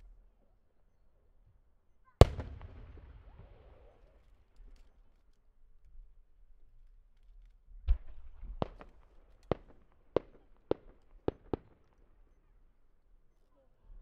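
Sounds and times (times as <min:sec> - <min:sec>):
firework mortar thump: 0:02.2 - 0:04.0
sharp firework cracks: 0:02.2 - 0:04.2.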